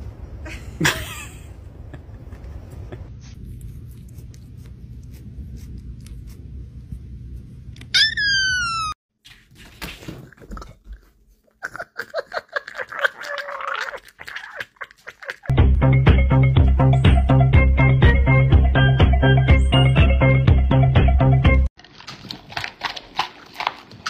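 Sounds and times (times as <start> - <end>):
low steady rumble: 0.0 - 7.9
kitten meowing: 8.0 - 9.0.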